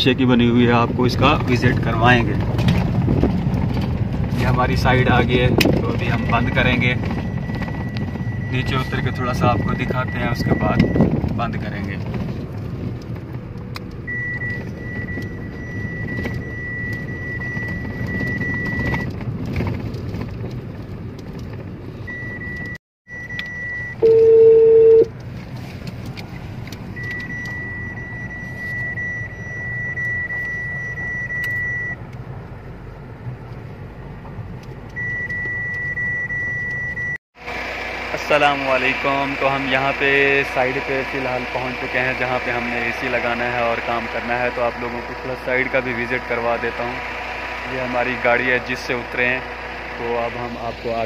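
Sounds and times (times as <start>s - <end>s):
car road and engine rumble: 0.0s - 51.0s
loud beep: 6.0s - 11.0s, 22.1s - 25.1s, 27.0s - 32.0s, 35.0s - 37.2s.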